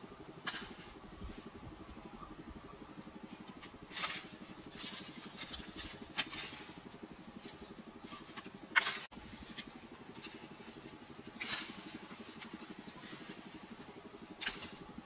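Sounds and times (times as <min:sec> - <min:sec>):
fast low hum: 0:00.0 - 0:15.0
dry sticks rustling and cracking: 0:03.4 - 0:06.8, 0:07.4 - 0:13.0.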